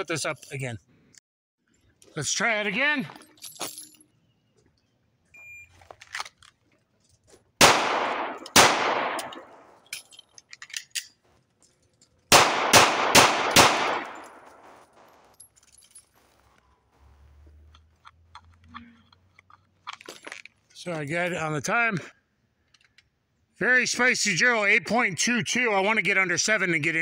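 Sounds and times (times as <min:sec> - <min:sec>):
pistol shots with echo: 0:07.6 - 0:09.8, 0:12.3 - 0:14.8.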